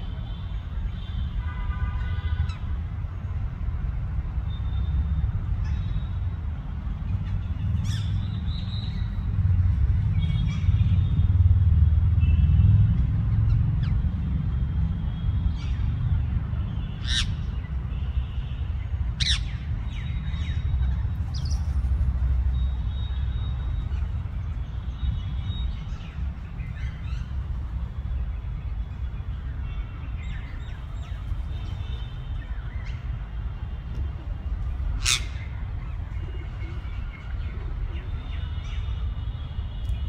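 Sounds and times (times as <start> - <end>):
parakeets screeching: 17.0 - 17.5, 19.2 - 21.7, 34.9 - 35.6.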